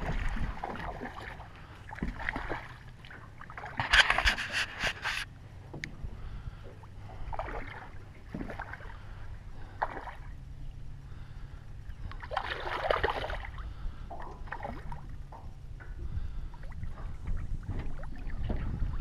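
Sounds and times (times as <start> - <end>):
fish splashing in water: 0.0 - 5.2, 12.2 - 13.6
steady low hum: 0.0 - 19.0.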